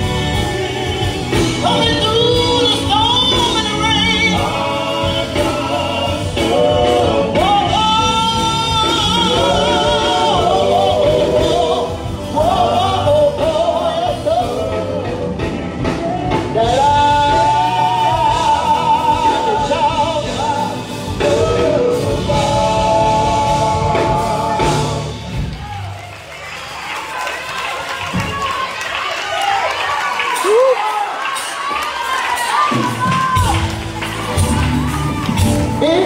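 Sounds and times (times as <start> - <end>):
male vocal group singing gospel: 0.0 - 25.5.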